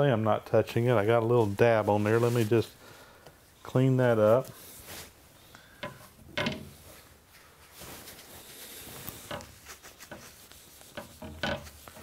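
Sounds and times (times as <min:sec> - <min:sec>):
cloth rag rubbing on steel: 0:00.9 - 0:02.8, 0:03.9 - 0:05.3, 0:06.6 - 0:12.0.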